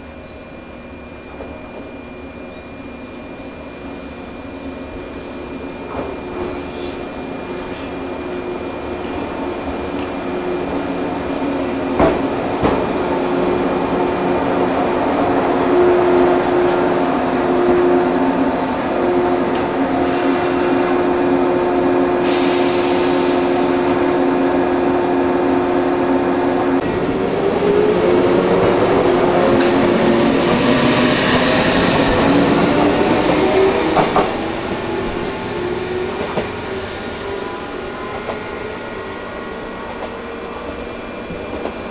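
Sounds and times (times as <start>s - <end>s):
electric train humming: 0.0s - 41.9s
rising whine of train: 0.0s - 41.9s
air hiss bursts: 22.2s - 23.8s.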